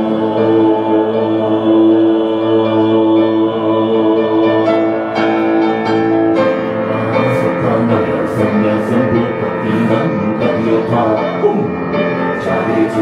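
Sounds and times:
slow grand piano passage: 0.0s - 13.0s.

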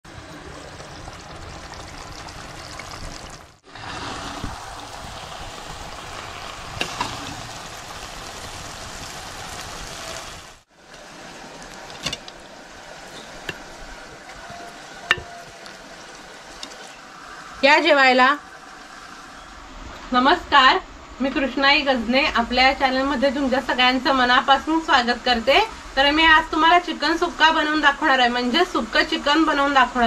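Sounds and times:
chicken sizzling in a clay pot: 0.1s - 19.6s.

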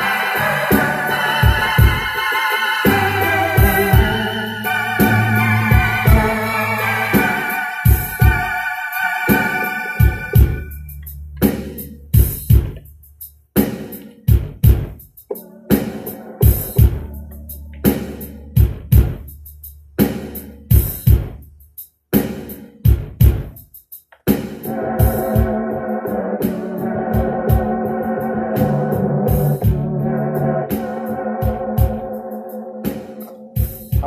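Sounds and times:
held keyboard chords: 0.0s - 11.1s, 15.3s - 18.2s, 24.6s - 34.0s
drum-machine beat: 0.0s - 34.0s
low bass line: 2.9s - 8.5s, 16.6s - 19.4s, 24.7s - 32.2s.

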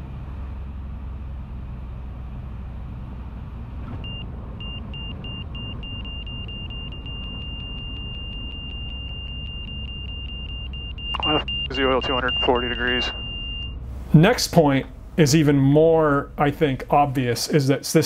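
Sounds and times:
high electronic alert beeps: 4.6s - 13.8s.

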